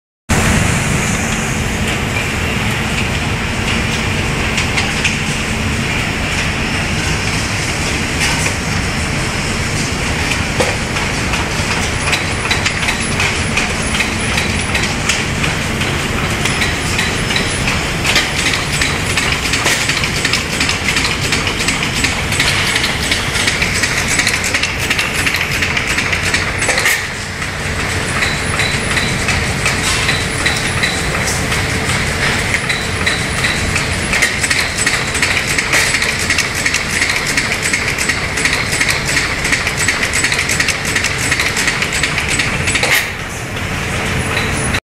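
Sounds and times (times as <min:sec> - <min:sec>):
clattering machine noise: 0:00.3 - 0:44.8
sharp clicks and knocks: 0:10.3 - 0:43.2.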